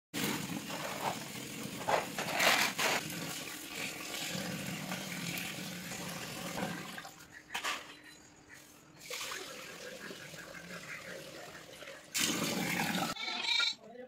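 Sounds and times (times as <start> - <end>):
water pouring into a steel pot: 9.0 - 10.6.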